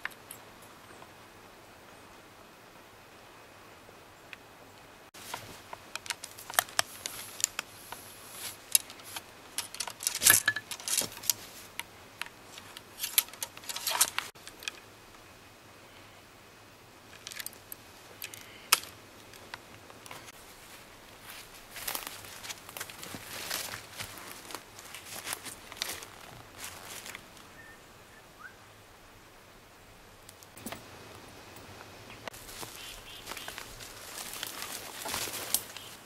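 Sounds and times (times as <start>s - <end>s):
clothing rustle: 5.2s - 11.8s, 19.3s - 27.4s, 32.3s - 36.0s
metallic clicks and rattles of gun: 5.3s - 14.9s, 17.1s - 20.3s.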